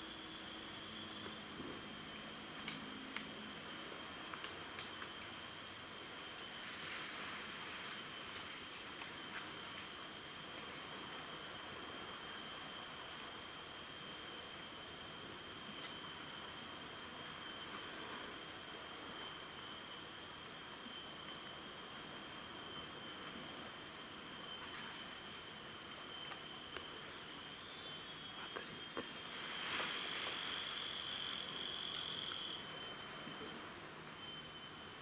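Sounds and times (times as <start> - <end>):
insects buzzing: 0.0 - 35.0
pulsing insect trill: 0.0 - 35.0.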